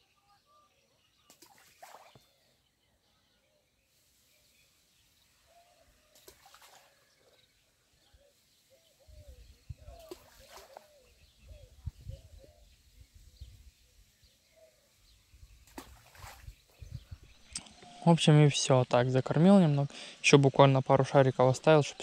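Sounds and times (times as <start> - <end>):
faint splashes in water: 1.2 - 2.6, 5.4 - 8.2, 9.7 - 12.0, 15.5 - 17.9.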